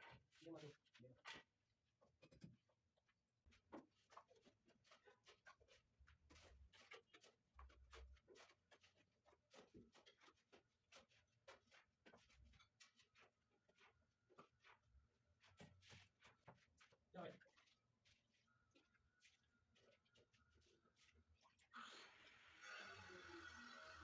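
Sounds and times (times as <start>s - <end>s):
mortar scraping and tapping: 3.6s - 17.0s.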